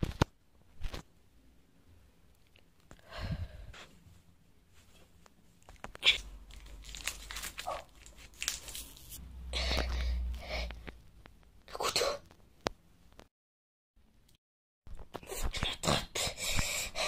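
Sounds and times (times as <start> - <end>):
sticky tape ripping off roll: 6.0 - 9.2.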